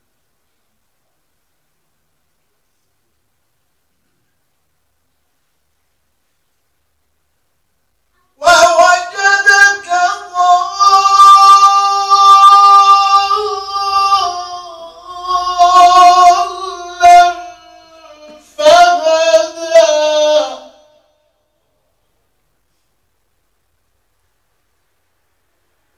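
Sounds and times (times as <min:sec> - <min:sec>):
man chanting into a microphone: 0:08.4 - 0:21.2.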